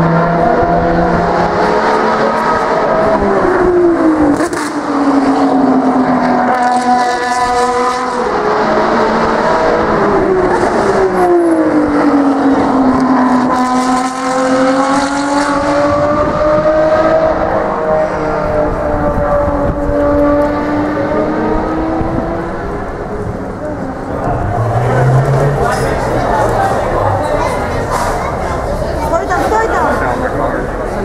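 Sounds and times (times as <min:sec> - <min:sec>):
race car engine passing by: 0:00.0 - 0:31.0.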